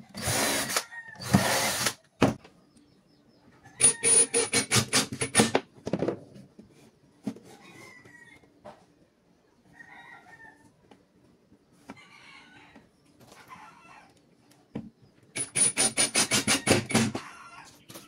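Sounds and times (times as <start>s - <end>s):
impact driver driving a screw: 0.2s - 2.0s, 15.4s - 17.2s.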